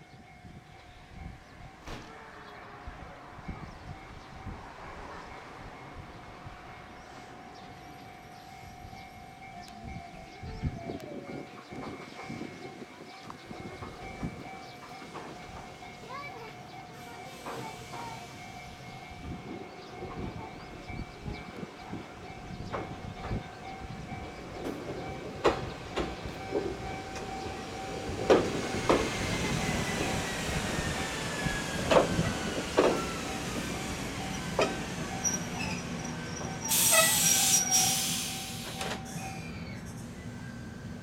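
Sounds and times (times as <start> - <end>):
train wheels clacking over rail joints: 24.5 - 30.3, 31.3 - 37.2
air brake hiss: 36.7 - 39.0.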